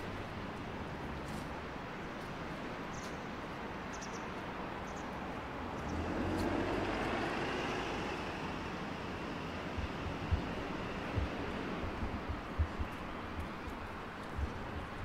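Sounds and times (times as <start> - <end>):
city traffic noise: 0.0 - 15.0
vehicle passing: 5.7 - 12.6.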